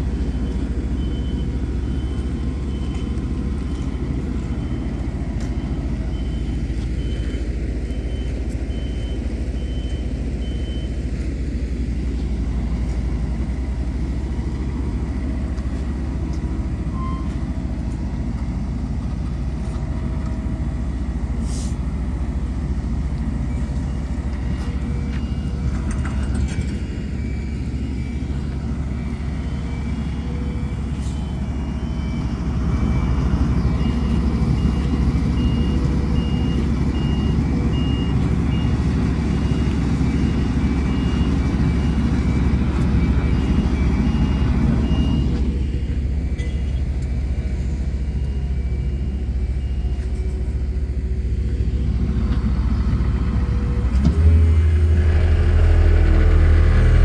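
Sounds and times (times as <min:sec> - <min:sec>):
diesel engines droning: 0:00.0 - 0:57.0
high repeated beeping alarm: 0:23.6 - 0:46.8.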